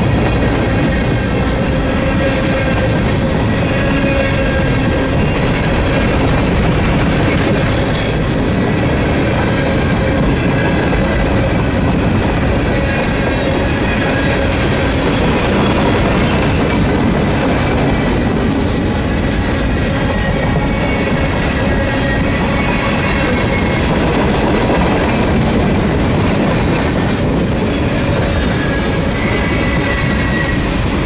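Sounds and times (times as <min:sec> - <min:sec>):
freight cars rumbling on rail: 0:00.0 - 0:31.0
high-pitched wheel squeal: 0:01.8 - 0:05.8, 0:19.8 - 0:23.9, 0:27.9 - 0:30.8.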